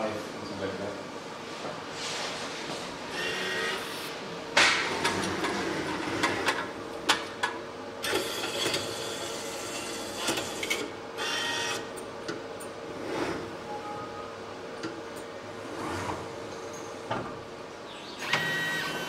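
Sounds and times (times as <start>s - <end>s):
faint hum: 0.0s - 19.0s
motor whine: 18.2s - 19.0s.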